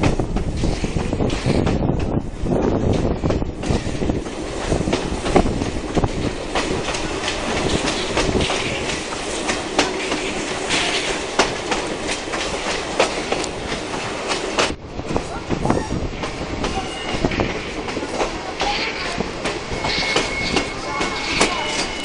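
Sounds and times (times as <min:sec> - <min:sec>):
train running rumble: 0:00.0 - 0:22.0
wheels clicking over rail joints: 0:02.8 - 0:14.8.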